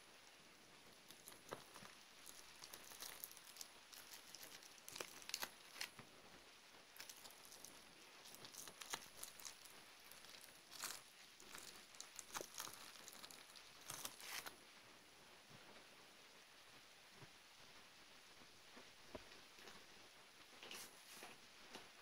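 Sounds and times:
bubble wrap crinkling and crackling: 0.0 - 14.7.

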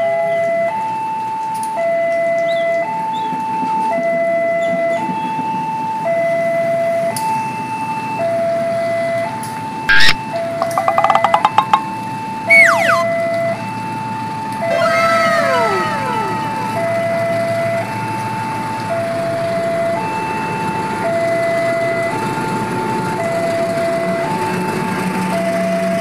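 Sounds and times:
two-tone crossing alarm: 0.0 - 26.0
tones sweeping down in pitch: 9.9 - 11.9, 12.5 - 13.3, 14.6 - 17.1.

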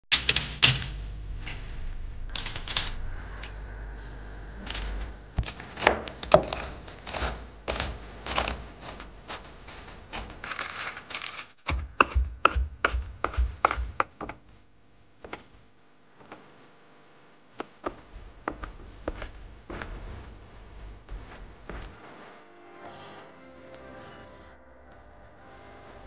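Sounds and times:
cleaver chopping nuts on wooden board: 11.6 - 14.4.

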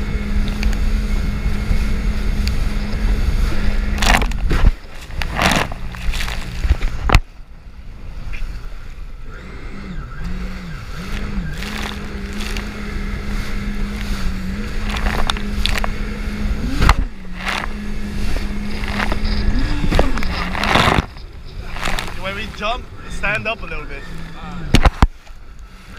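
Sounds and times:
jet ski engine: 0.0 - 25.9
water and wind wash: 0.0 - 25.9
hull slaps: 11.0 - 22.8.

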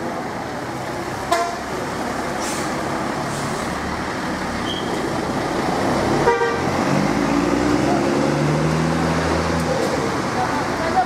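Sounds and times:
brief air hiss: 2.4 - 3.7.

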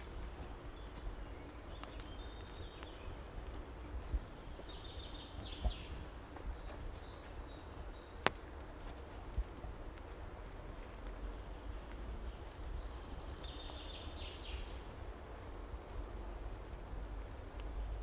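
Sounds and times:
small birds twittering: 0.0 - 8.6, 10.8 - 16.0
footsteps on forest path: 0.0 - 18.0
twig snapping click: 1.8 - 2.9.

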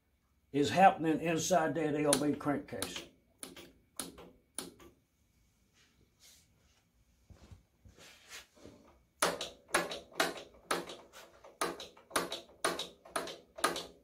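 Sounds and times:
soft handling noises: 5.4 - 9.0.

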